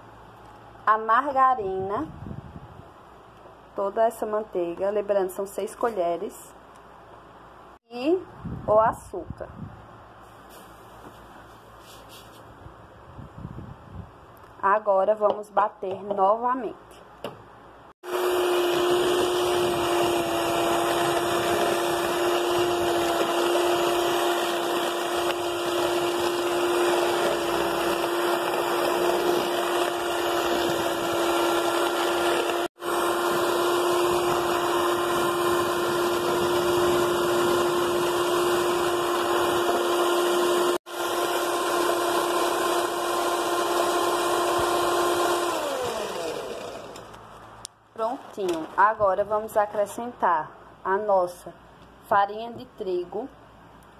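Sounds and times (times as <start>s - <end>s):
electric mixer motor hum: 18.0s - 47.2s.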